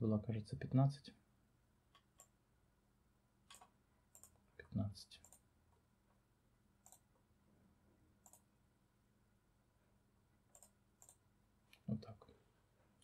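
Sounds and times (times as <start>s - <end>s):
faint mouse clicks: 1.9s - 2.4s, 3.5s - 5.8s, 6.8s - 7.1s, 8.2s - 8.5s, 10.5s - 11.9s.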